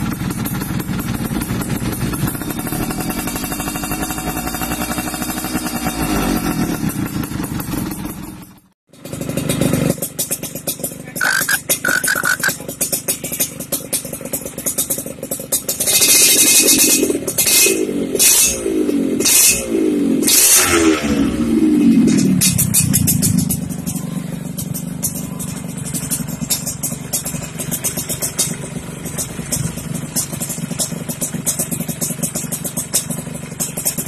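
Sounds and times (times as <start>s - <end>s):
two-stroke motorcycle idling and blipping: 0.0s - 34.0s
two-stroke motorcycle revving: 0.0s - 34.0s.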